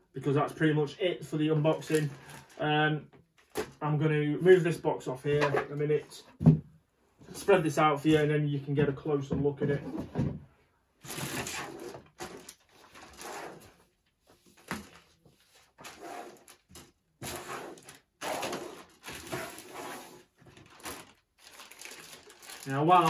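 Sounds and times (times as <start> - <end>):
plastic bags rustling: 1.7 - 2.6, 11.0 - 23.0.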